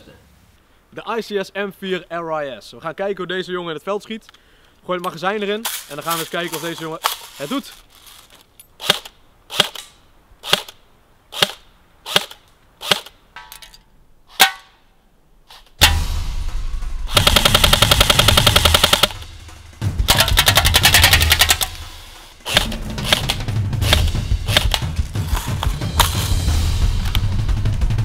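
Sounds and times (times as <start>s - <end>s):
loud steady background sound: 15.8s - 28.0s
airsoft rifle full-auto bursts: 17.1s - 19.3s, 20.1s - 25.5s.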